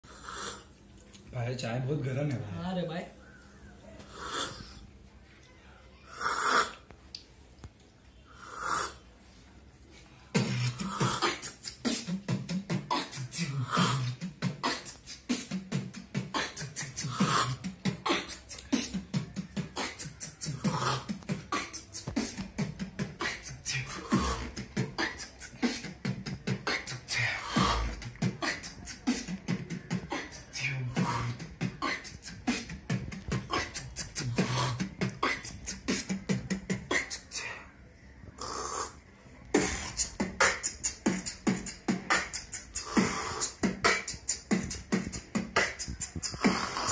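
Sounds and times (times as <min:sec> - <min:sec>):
beatboxing beat: 0:10.3 - 0:37.6, 0:38.4 - 0:46.9.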